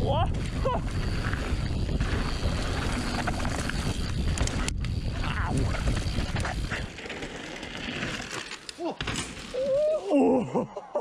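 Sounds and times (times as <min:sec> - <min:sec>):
wind buffeting microphone: 0:00.0 - 0:06.9
bike tyres rumbling over dirt: 0:00.0 - 0:10.0
bike rattles and knocks: 0:00.1 - 0:09.7.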